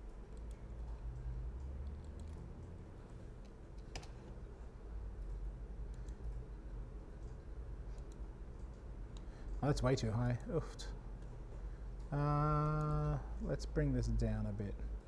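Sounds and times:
steady low hum: 0.0 - 15.0
mouse and keyboard clicks: 0.3 - 2.7, 3.4 - 4.4.

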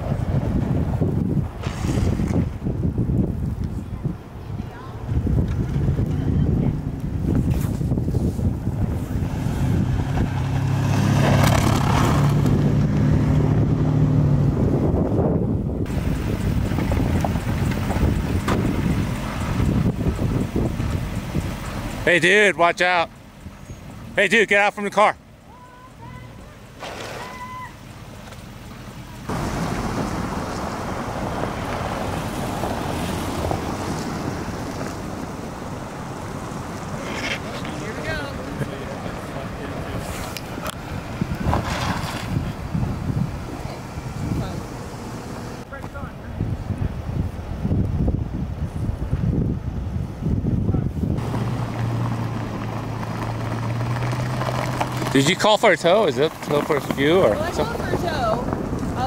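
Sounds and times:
wind rushing on microphone: 0.0 - 22.2, 29.2 - 59.0
car engine hum: 0.0 - 59.0
tyres hissing through slush: 39.2 - 40.6.

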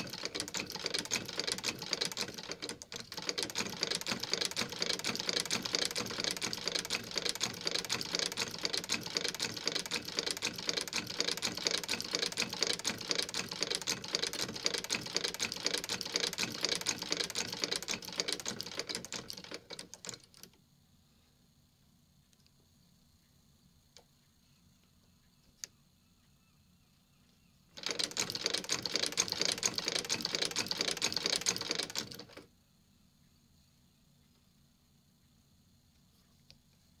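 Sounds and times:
sewing machine clacking: 0.0 - 20.5, 27.8 - 32.5.

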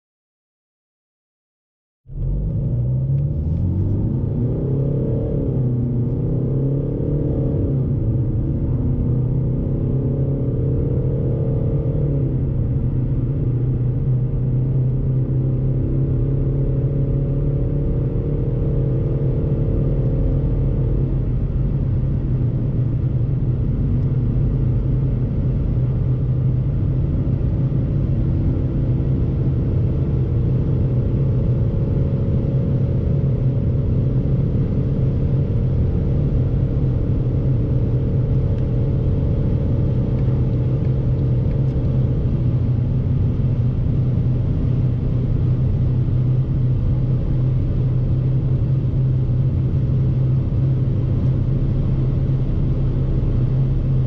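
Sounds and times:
diesel engine accelerating hard: 2.1 - 54.0
low cabin rumble: 18.0 - 54.0.

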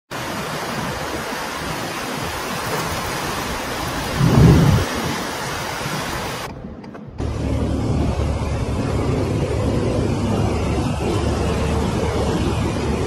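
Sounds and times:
heavy rain and hail: 0.1 - 6.5
low thunder rumble: 3.8 - 13.0.

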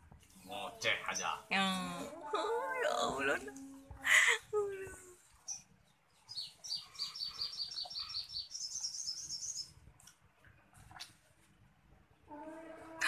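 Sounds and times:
songbird chirping and trilling: 0.2 - 9.8.

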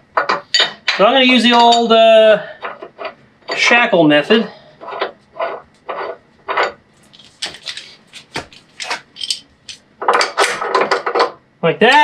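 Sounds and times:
steel shackle clinking: 0.2 - 2.0, 8.8 - 9.8.

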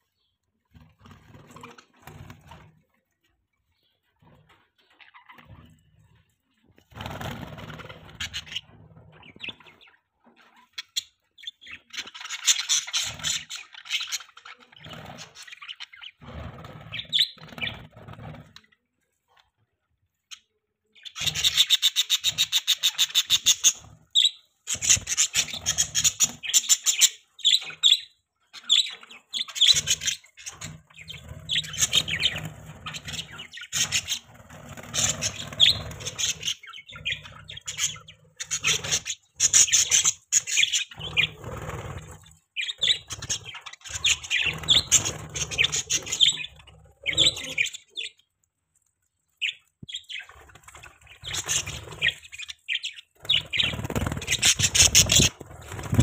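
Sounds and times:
bird wing flutters: 6.8 - 8.4, 33.8 - 36.5, 53.2 - 56.0
budgerigars chattering and chirping: 7.0 - 18.5, 20.3 - 48.2, 49.4 - 56.0.

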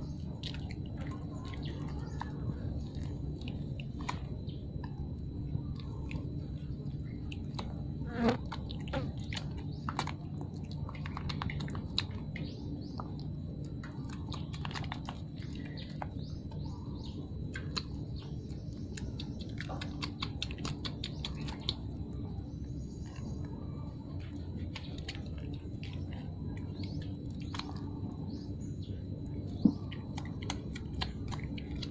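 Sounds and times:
steady low buzz: 0.0 - 31.9.

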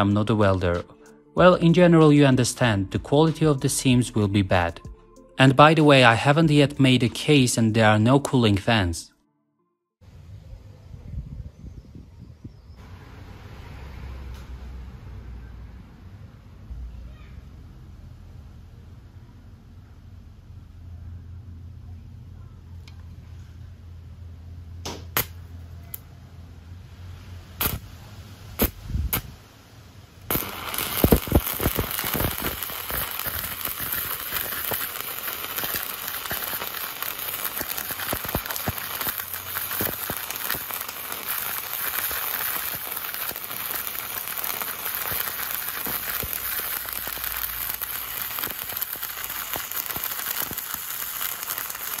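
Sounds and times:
electrode striking snaps: 24.8 - 26.0, 27.6 - 27.9, 28.6 - 29.3, 30.3 - 52.0
welding arc crackling: 25.0 - 25.4, 27.6 - 29.4, 30.3 - 52.0.

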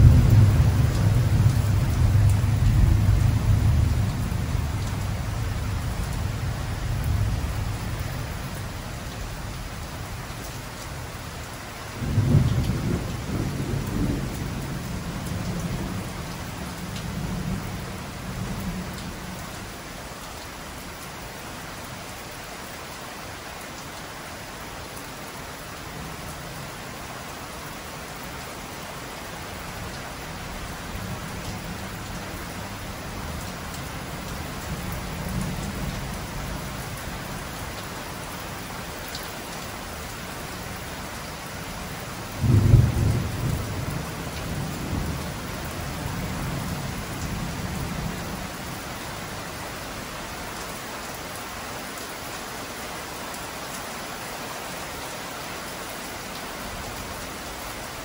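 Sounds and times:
rolling thunder: 0.0 - 5.1, 42.4 - 45.3
heavy rain: 0.0 - 58.0.

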